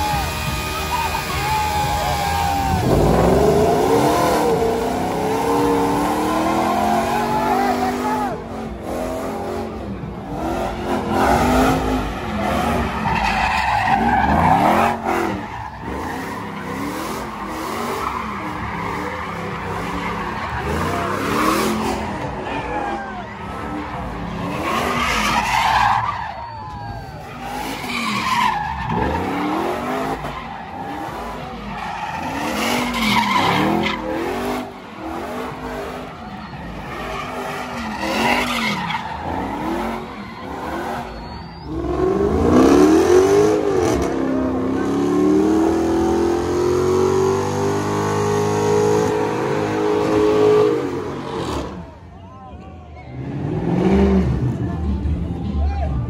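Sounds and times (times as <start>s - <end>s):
car engines revving: 0.0s - 56.0s
tyres screeching on pavement: 10.8s - 44.0s.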